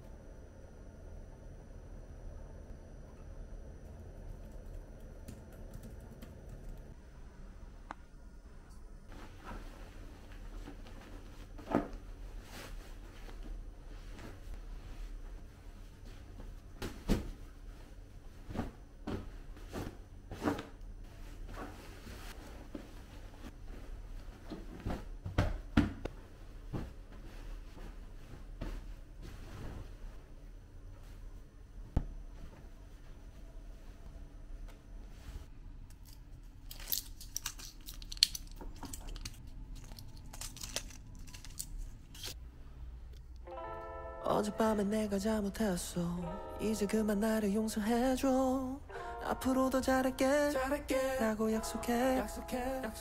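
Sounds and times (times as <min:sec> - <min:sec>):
capsules clicking through foil: 0:36.0 - 0:42.4
foil blister pack crinkling: 0:36.6 - 0:42.4.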